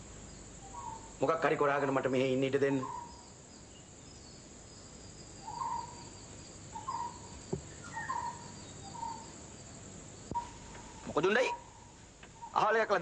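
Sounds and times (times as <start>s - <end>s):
high insect trill: 0.0s - 13.0s
bird chirps: 0.3s - 12.7s.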